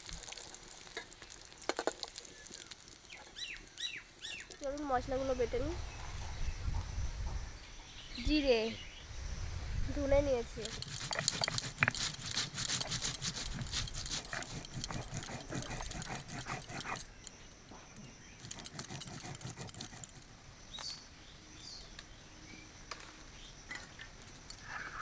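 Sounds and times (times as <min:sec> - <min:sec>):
stone grinding seeds: 0:10.5 - 0:20.3.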